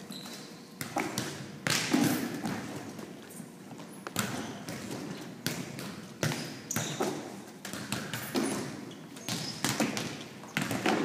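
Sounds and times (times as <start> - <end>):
shoe squeaks: 0.0 - 0.8, 6.4 - 7.3, 8.4 - 9.8
volleyball and body thuds: 0.8 - 3.2, 3.8 - 11.0.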